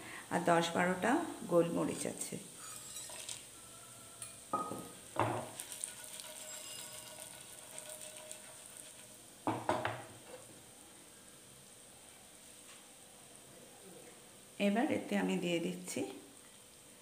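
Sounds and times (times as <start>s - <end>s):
spices sizzling in oil: 0.3s - 3.6s, 4.2s - 10.1s.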